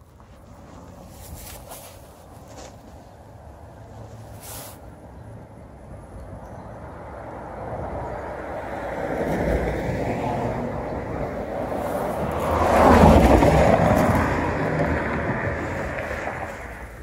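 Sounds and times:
vehicle passing by: 6.9s - 17.0s.

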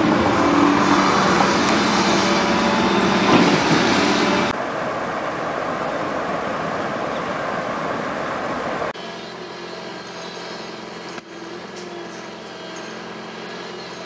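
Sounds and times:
water rushing: 0.0s - 9.0s
excavator diesel engine hum: 0.0s - 14.0s.

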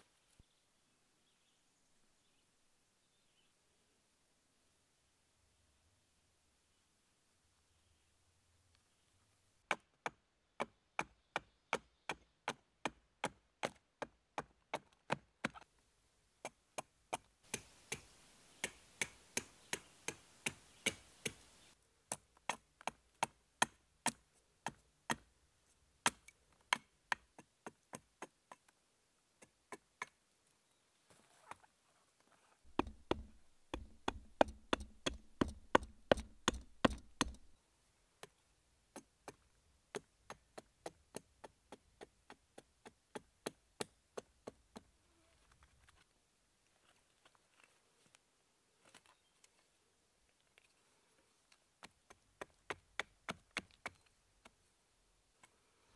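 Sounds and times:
hatchet chopping wood: 9.7s - 15.6s, 16.4s - 21.5s, 22.1s - 25.3s, 26.0s - 28.3s, 32.7s - 37.6s.

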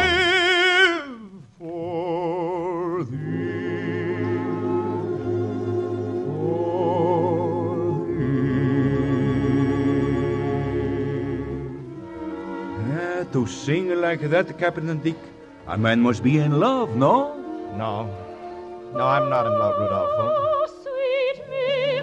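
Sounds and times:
man singing with vibrato: 0.0s - 5.3s, 6.2s - 11.7s, 18.9s - 20.7s
orchestra playing: 3.1s - 20.5s.

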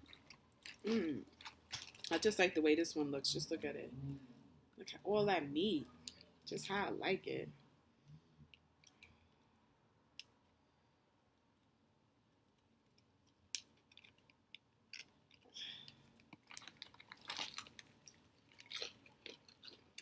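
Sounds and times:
foil packet crinkling: 0.1s - 2.3s, 16.3s - 20.0s.

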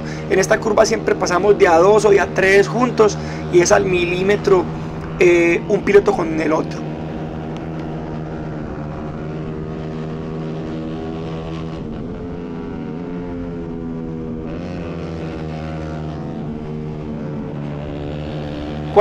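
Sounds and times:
racing motorcycle engine high revs: 0.0s - 19.0s.

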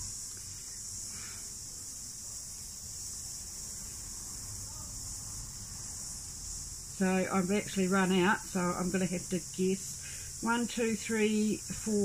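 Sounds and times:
cicadas buzzing: 0.0s - 12.0s.

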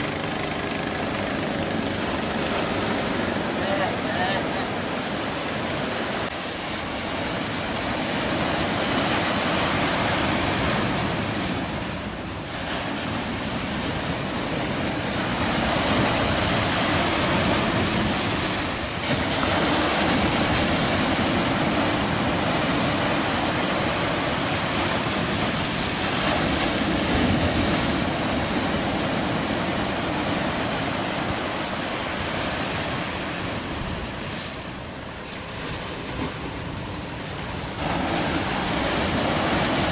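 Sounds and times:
surf washing against rocks: 0.0s - 39.9s.

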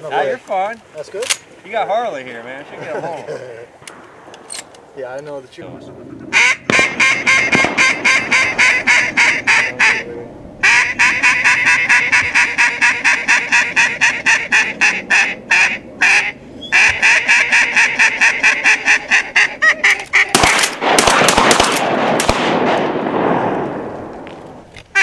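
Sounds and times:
duck quacking: 6.3s - 20.6s
shotgun shots: 6.6s - 8.8s, 20.3s - 23.9s.

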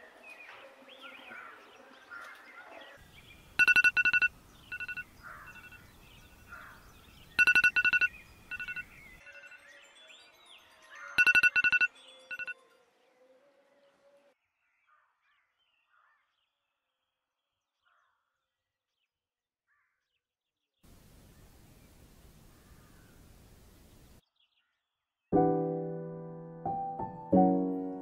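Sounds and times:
phone alarm beeping: 3.6s - 5.9s, 7.4s - 9.5s, 11.2s - 12.5s.

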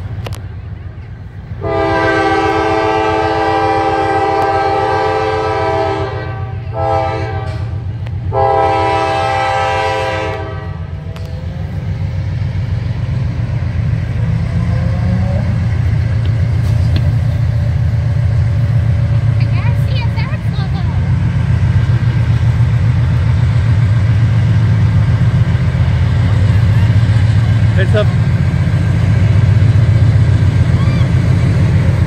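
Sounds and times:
diesel engine rumbling: 0.0s - 32.0s
locomotive air horn blasts: 1.6s - 10.9s.

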